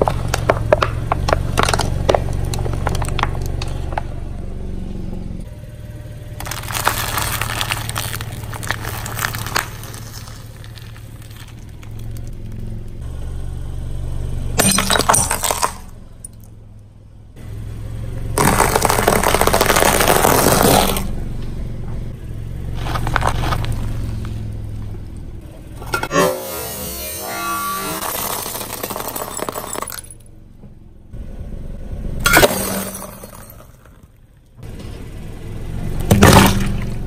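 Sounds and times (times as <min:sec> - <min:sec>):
tyre crushing crunchy packets: 0:00.0 - 0:04.1, 0:06.4 - 0:12.6, 0:18.4 - 0:21.1, 0:22.8 - 0:24.4, 0:28.0 - 0:30.1
low engine hum: 0:00.0 - 0:37.0.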